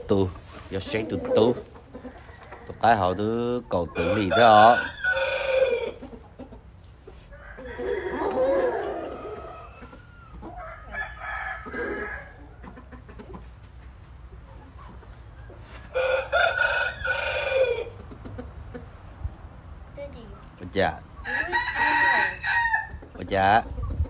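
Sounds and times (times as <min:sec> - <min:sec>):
rooster crowing: 0:04.0 - 0:06.0, 0:07.4 - 0:12.6, 0:15.9 - 0:17.9, 0:21.2 - 0:23.0.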